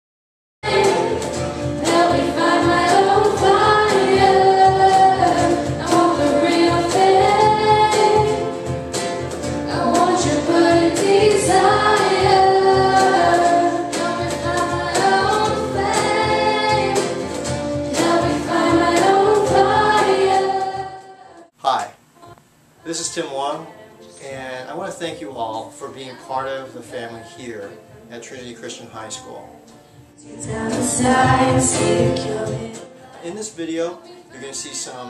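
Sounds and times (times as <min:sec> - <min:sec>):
voices singing: 0:00.6 - 0:08.7, 0:09.5 - 0:35.0
acoustic guitar: 0:00.6 - 0:22.0, 0:22.8 - 0:35.0
cajon beat: 0:00.6 - 0:22.4, 0:30.5 - 0:33.6.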